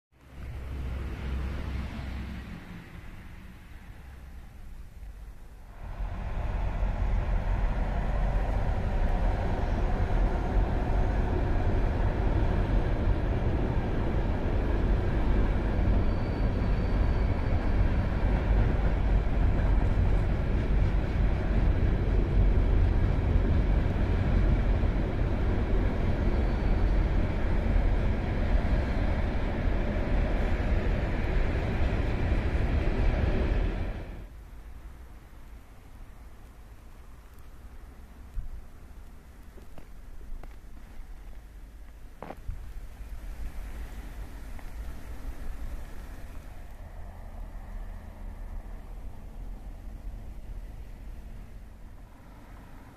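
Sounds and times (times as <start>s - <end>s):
freight train wheels rumbling: 0.3s - 34.3s.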